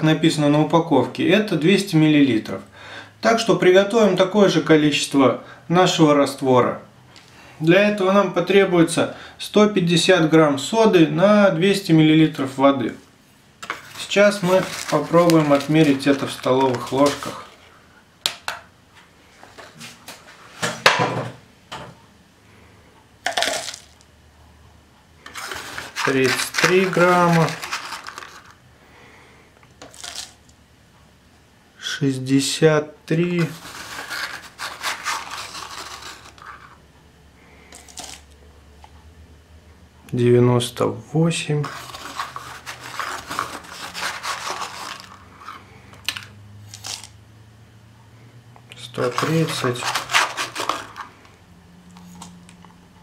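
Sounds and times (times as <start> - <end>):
powder pouring into cup: 13.6 - 17.6, 23.3 - 24.0, 25.3 - 28.6, 29.8 - 30.4, 33.4 - 36.7, 41.6 - 45.3, 49.0 - 51.2
metal spoon clinking and scraping: 49.0 - 51.1.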